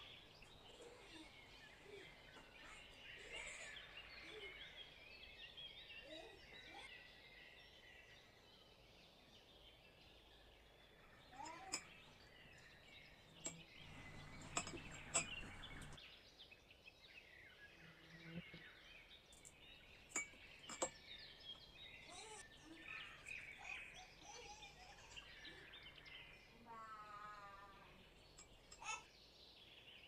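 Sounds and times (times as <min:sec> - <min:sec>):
clinks against glass jars: 0:11.4 - 0:16.0, 0:20.1 - 0:21.6, 0:28.2 - 0:29.0.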